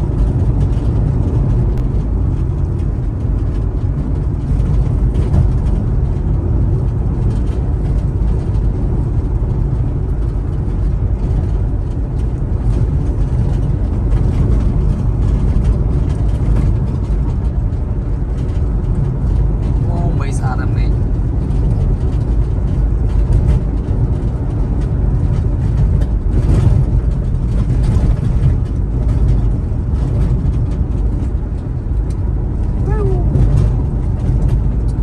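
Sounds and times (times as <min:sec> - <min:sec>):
car tyres and engine rumble: 0:00.0 - 0:35.0.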